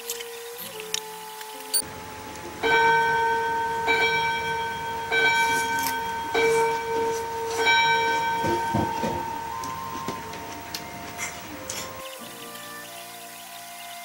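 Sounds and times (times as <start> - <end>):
wall clock chiming: 1.8 - 11.8.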